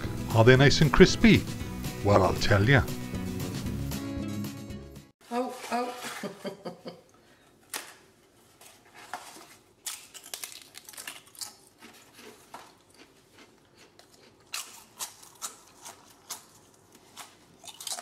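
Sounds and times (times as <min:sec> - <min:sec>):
poppadoms crunching: 0:09.0 - 0:18.0.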